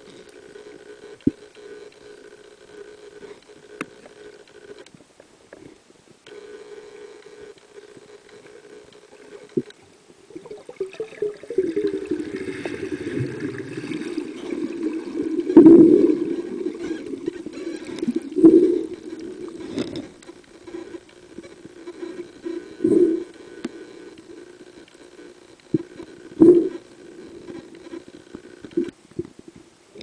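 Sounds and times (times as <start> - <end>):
underwater water gurgling: 9.1 - 23.4, 25.7 - 27.6.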